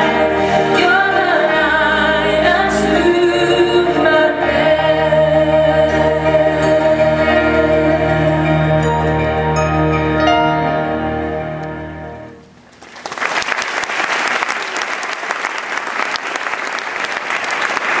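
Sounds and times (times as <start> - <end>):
audience applause: 12.6 - 18.0.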